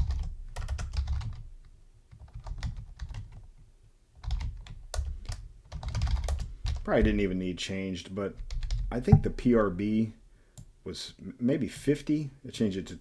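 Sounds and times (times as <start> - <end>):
typing on a keyboard: 0.0 - 1.4, 2.1 - 3.6, 4.2 - 6.8.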